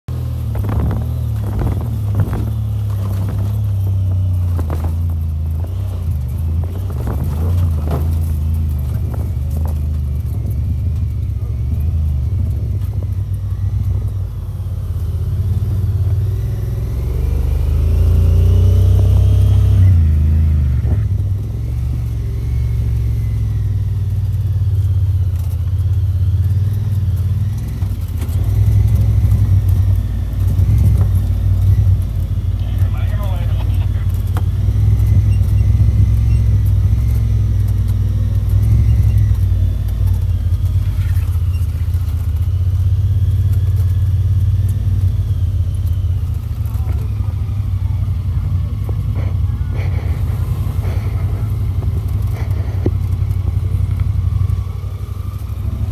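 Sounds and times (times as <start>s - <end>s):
vehicle engine rumbling: 0.0s - 55.9s
knocks and rattles over bumps: 0.1s - 14.4s, 23.6s - 45.2s.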